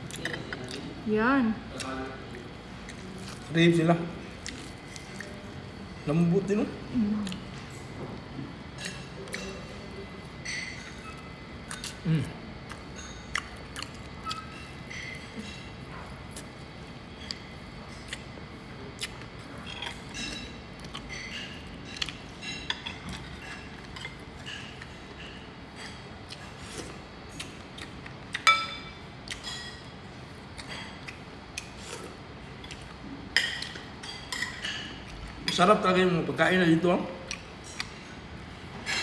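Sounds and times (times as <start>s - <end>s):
metal spoon clinking on plates: 10.4s - 11.3s, 28.4s - 29.9s, 33.4s - 35.7s.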